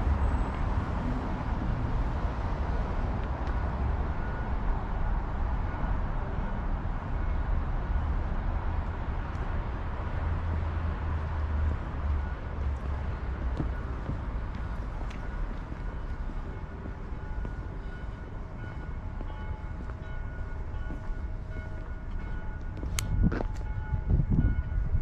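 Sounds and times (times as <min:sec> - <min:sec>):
constant low outdoor rumble: 0:00.0 - 0:25.0.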